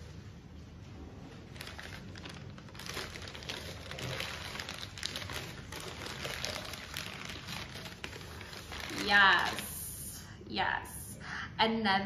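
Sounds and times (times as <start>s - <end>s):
paper wrapping rustling and crinkling: 1.3s - 9.8s.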